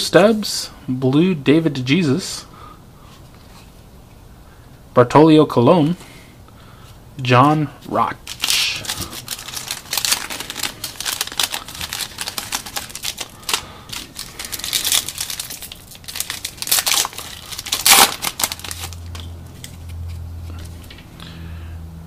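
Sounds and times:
foil wrapper crackling: 8.2s - 20.1s
foil tearing: 8.3s - 20.0s.

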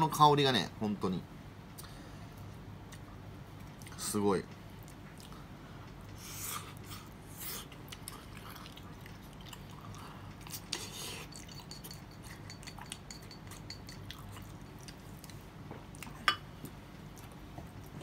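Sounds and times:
person chewing sticky food: 4.8s - 5.5s, 6.3s - 18.0s.

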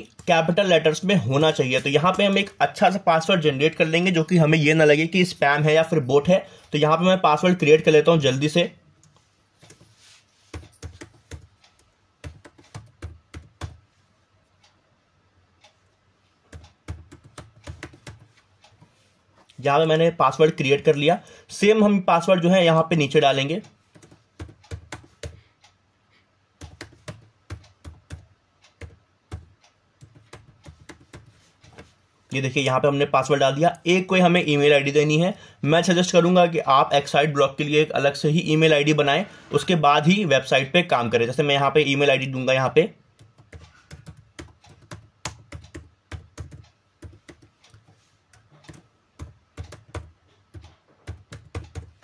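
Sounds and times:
computer keyboard typing: 0.0s - 2.6s, 9.0s - 13.8s, 16.4s - 18.9s, 22.8s - 25.7s, 26.6s - 31.9s, 43.1s - 52.0s.

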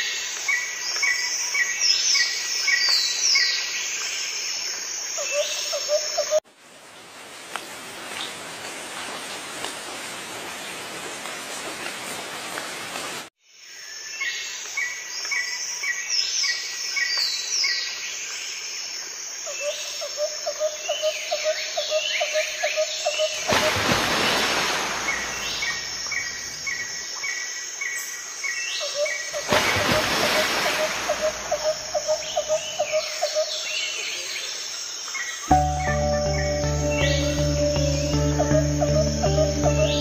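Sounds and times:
birds chirping and whistling: 35.5s - 40.0s.

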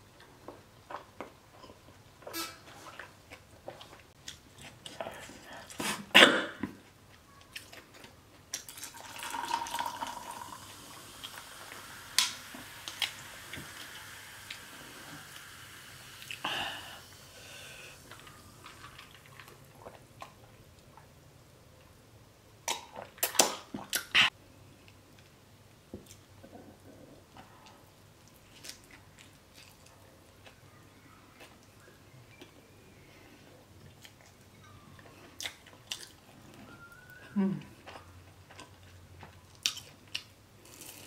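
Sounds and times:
wet mouth clicks and chewing: 35.4s - 36.2s, 37.8s - 41.0s.

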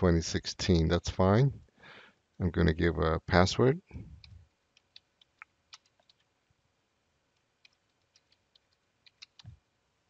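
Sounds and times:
keyboard key clicks: 4.2s - 6.2s, 7.6s - 9.6s.

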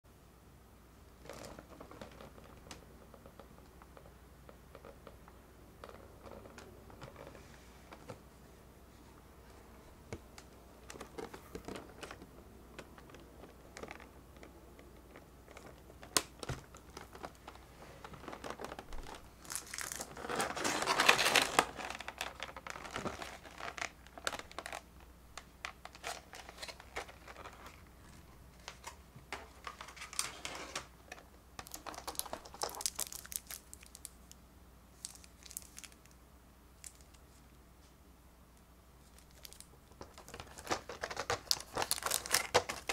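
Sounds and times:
plastic trays crinkling: 10.0s - 34.4s, 35.0s - 36.2s, 39.0s - 42.9s.

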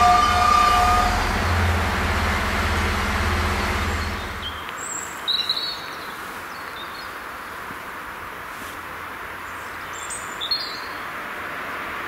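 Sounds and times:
train rumbling on rails: 0.0s - 4.7s.

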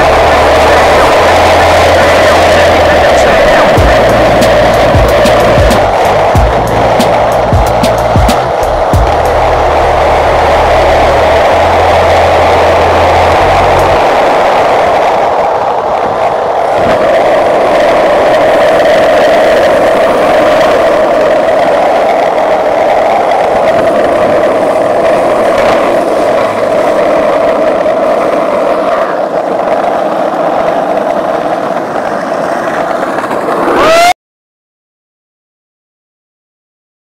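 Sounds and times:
skateboard wheels rolling on asphalt: 0.0s - 34.1s.

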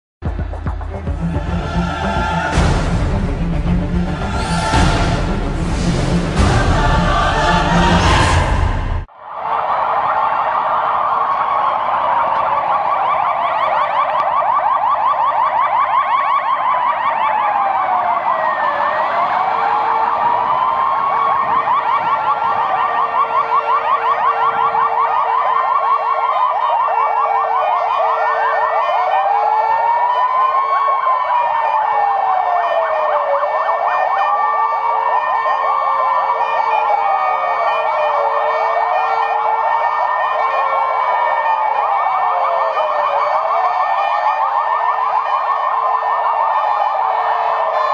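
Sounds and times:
wailing sirens: 0.9s - 47.9s
fast warbling siren: 1.1s - 47.9s.

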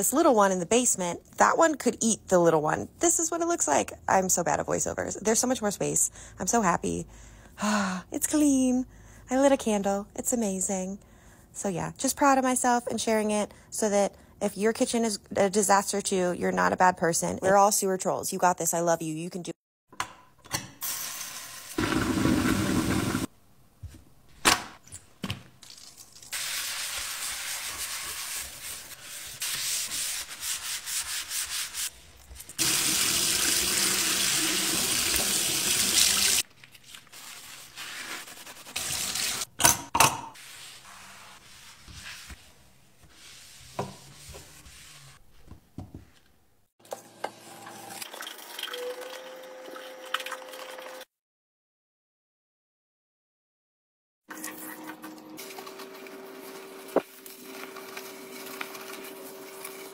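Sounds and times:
sponge scrubbing sink: 26.3s - 39.5s, 40.4s - 45.5s, 54.4s - 59.9s
tap water running into sink: 32.6s - 36.4s.

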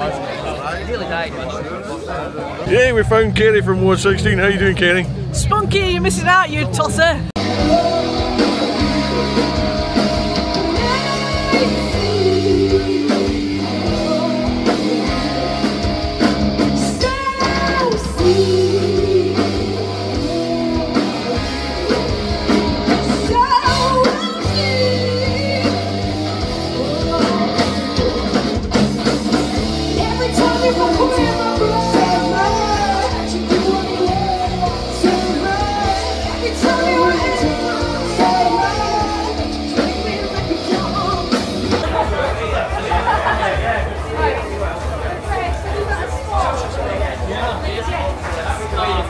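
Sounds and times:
rock band playing live: 2.6s - 45.9s
person singing: 7.4s - 16.0s, 16.9s - 21.5s, 29.9s - 41.7s.

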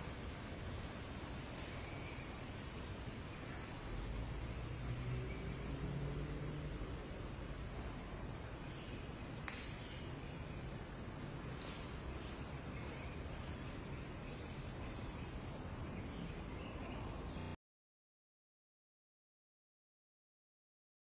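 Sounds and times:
high-pitched insect chorus: 0.0s - 17.6s
sharp click: 9.4s - 9.9s.

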